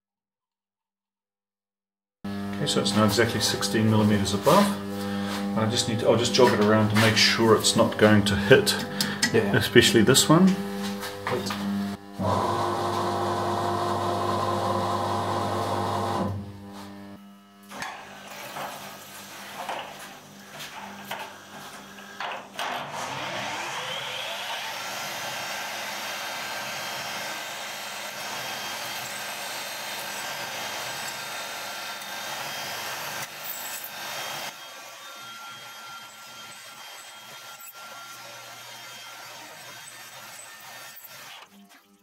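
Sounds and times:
spindle whine: 2.3s - 17.8s
milling machine running: 2.3s - 41.7s
drilling noise: 2.3s - 41.9s.

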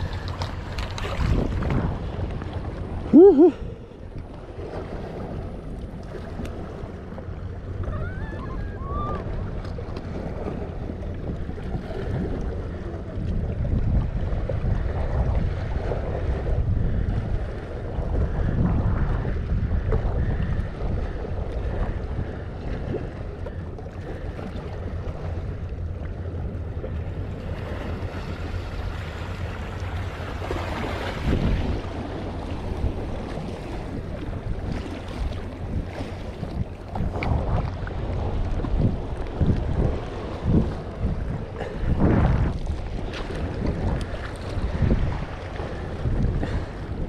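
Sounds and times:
waves washing against rock: 0.0s - 3.7s, 27.2s - 47.0s
wind buffeting microphone: 0.0s - 47.0s.

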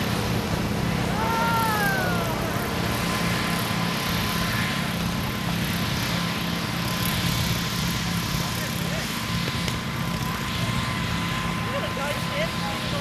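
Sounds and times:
small lawnmower engines racing: 0.0s - 13.0s.

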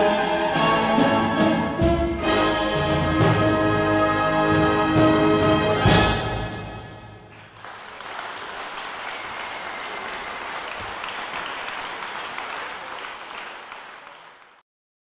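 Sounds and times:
audience applauding: 7.3s - 14.6s.

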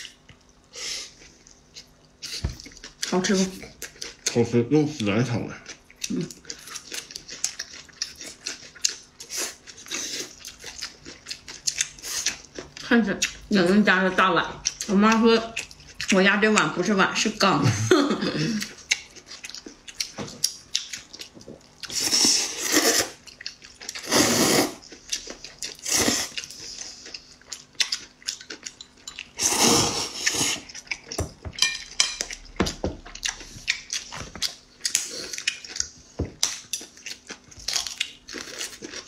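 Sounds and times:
wet chewing: 5.6s - 13.5s, 14.6s - 16.7s, 18.5s - 39.0s
slurping noodles: 21.9s - 23.2s, 24.0s - 24.8s, 29.4s - 30.7s.

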